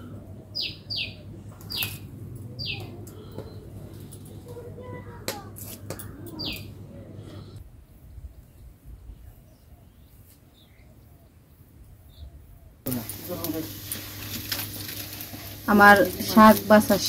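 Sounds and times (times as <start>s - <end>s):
bird chirping: 0.0s - 4.6s, 5.9s - 7.6s
low steady hum: 0.0s - 7.6s
leaves rustling: 0.6s - 7.6s, 12.9s - 17.0s
stems snapping: 12.9s - 17.0s.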